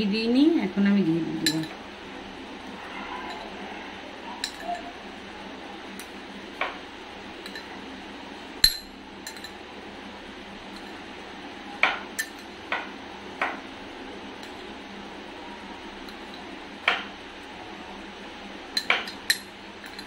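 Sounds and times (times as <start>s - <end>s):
metal spoon clinking on glass bowl: 1.4s - 1.8s, 4.4s - 4.9s, 8.6s - 9.6s.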